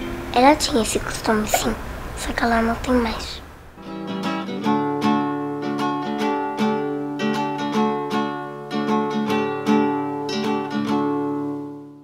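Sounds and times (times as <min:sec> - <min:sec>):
acoustic guitar picked and strummed: 0:03.8 - 0:12.0.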